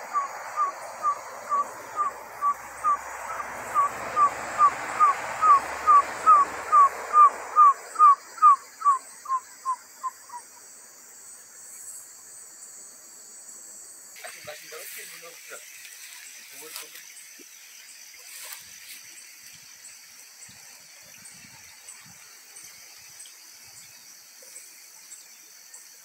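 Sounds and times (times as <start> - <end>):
bird hooting notes: 0.0 - 10.5.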